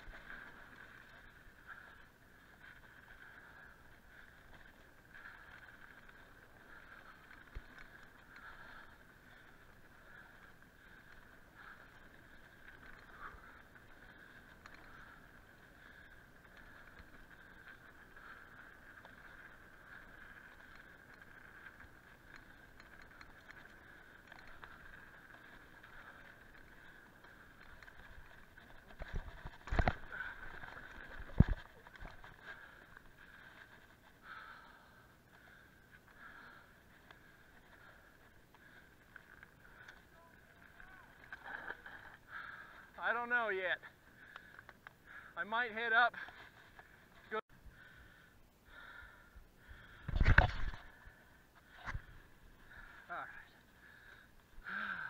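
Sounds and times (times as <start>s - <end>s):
bike tyres buzzing: 0.0s - 42.8s.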